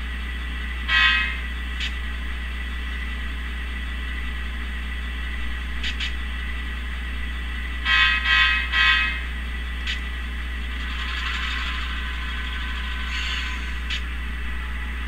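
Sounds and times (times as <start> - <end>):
model locomotive engine hum: 0.0 - 15.0
model train air horn blasts: 0.9 - 1.4, 7.9 - 9.2.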